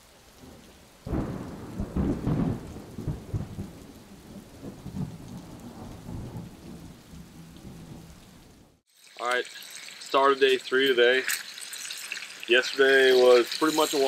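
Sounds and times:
rain falling: 0.0 - 14.0
thunder rumbling: 0.4 - 8.8.

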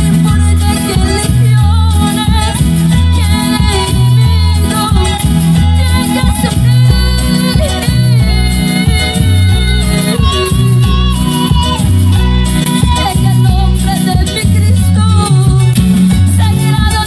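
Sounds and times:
band with bouncing bass line: 0.0 - 17.0
woman singing lead: 0.0 - 17.0.

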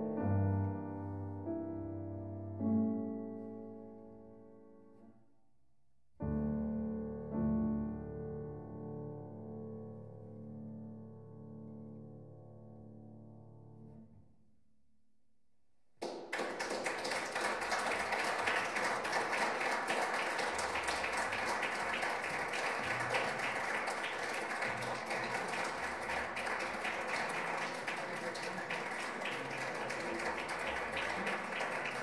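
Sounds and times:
audience applauding: 16.0 - 32.0.

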